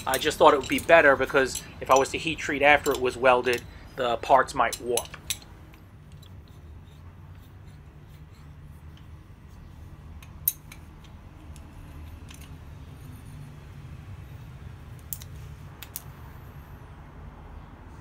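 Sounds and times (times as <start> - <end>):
light metal clicks: 0.0 - 6.4, 14.9 - 16.1
steady low hum: 0.0 - 18.0.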